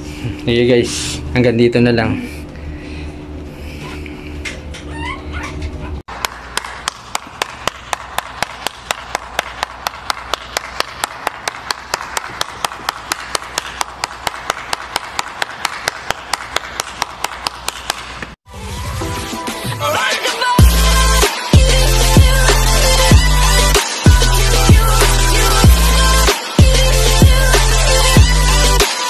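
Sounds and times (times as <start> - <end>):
applause: 6.1 - 18.3
steady hand clapping: 6.1 - 18.4.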